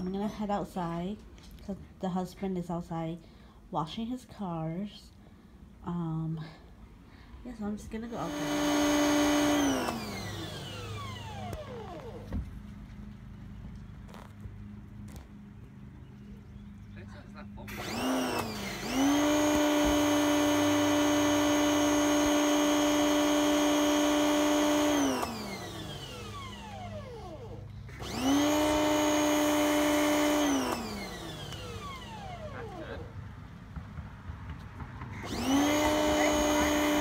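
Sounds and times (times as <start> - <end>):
pressure washer motor whine: 8.0 - 12.5, 17.6 - 33.2, 35.1 - 37.0.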